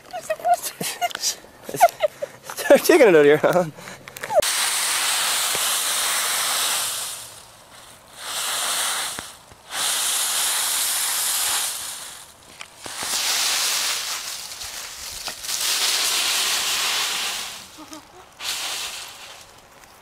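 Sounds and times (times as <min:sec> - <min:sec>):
dry leaves rustling: 0:04.4 - 0:20.0.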